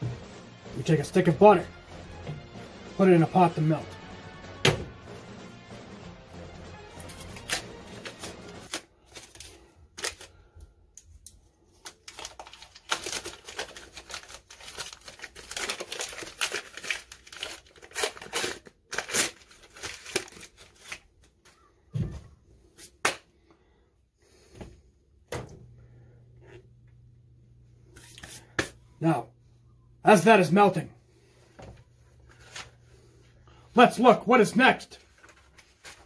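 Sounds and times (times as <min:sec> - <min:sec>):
paper wrapper crinkling and tearing: 0:06.9 - 0:10.6, 0:11.6 - 0:21.5, 0:34.6 - 0:36.0.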